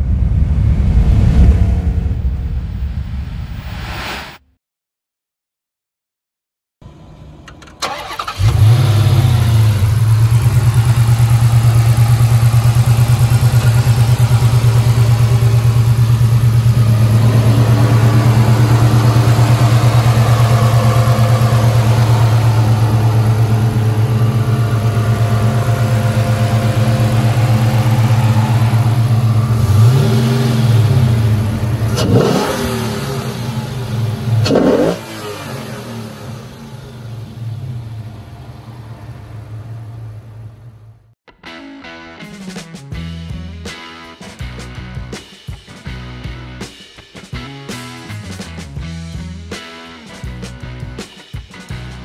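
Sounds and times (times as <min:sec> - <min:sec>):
car engine idling and revving: 0:06.9 - 0:41.1.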